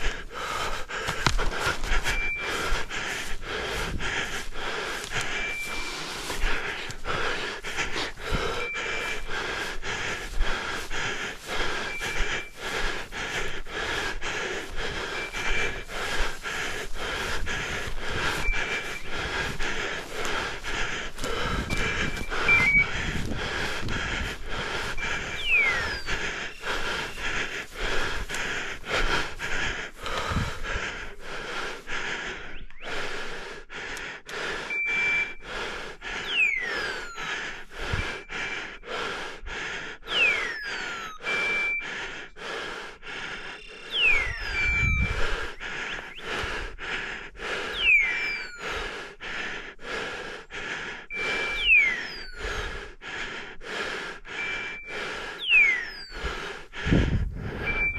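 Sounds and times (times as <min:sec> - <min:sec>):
hard breathing: 0:00.0 - 0:57.9
footsteps crunching on forest floor: 0:00.3 - 0:08.6, 0:13.8 - 0:24.7
falling whistle-like sweeps: 0:21.6 - 0:23.9, 0:24.9 - 0:27.3, 0:36.2 - 0:37.2, 0:40.1 - 0:41.8, 0:43.5 - 0:46.3, 0:47.7 - 0:48.6, 0:51.1 - 0:52.7, 0:54.4 - 0:56.7
short high beeps: 0:21.7 - 0:23.2, 0:25.0 - 0:27.2, 0:34.7 - 0:35.4, 0:36.2 - 0:37.2, 0:43.6 - 0:45.2, 0:47.7 - 0:48.6, 0:51.1 - 0:52.4, 0:54.4 - 0:56.2.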